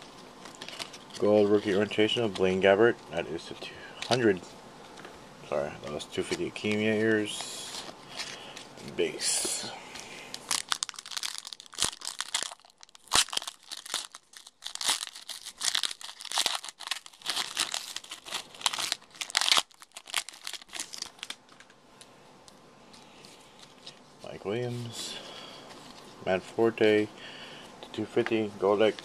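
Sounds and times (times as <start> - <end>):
foil wrapper crinkling and tearing: 0.4 - 2.2, 10.3 - 21.8.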